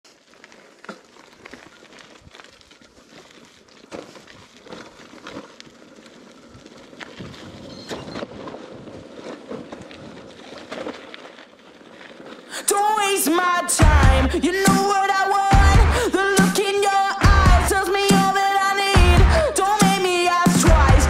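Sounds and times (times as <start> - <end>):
tyres crunching on loose stones: 0.0 - 21.0
bike knocking and rattling: 0.1 - 12.5.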